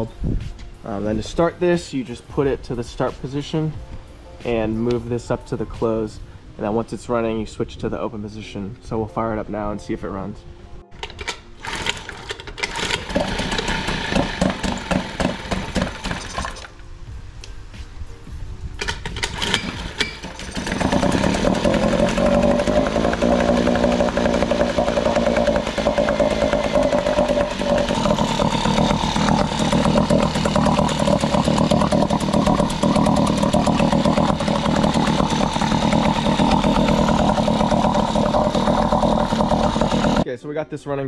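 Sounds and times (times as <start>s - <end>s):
outboard motor pull-started: 10.9s - 16.7s, 18.8s - 40.2s.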